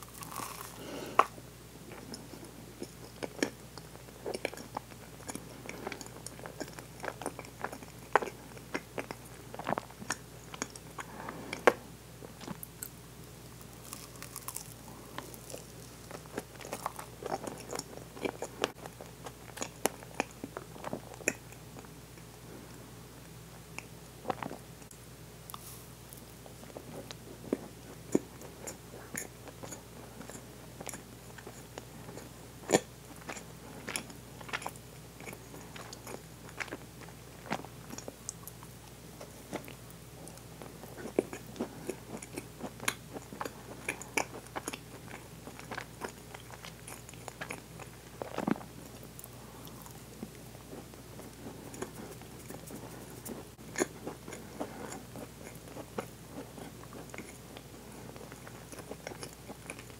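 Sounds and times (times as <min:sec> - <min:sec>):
chewing cake close up: 0:00.0 - 0:59.9.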